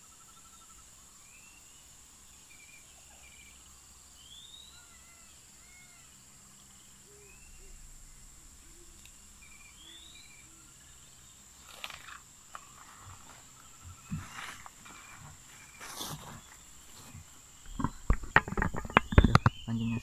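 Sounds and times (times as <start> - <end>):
birds calling: 0.0 - 20.0
high insect drone: 0.0 - 20.0
rustling clatter: 11.5 - 19.7.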